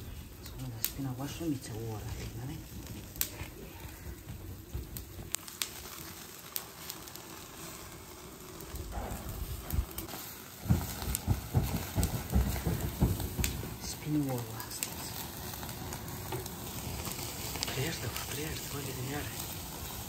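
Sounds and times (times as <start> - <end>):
meat sizzling on charcoal grill: 0.0 - 20.0
sharp crackles and pops: 0.0 - 20.0
low thumps and rumbles: 2.1 - 5.5, 8.7 - 14.4.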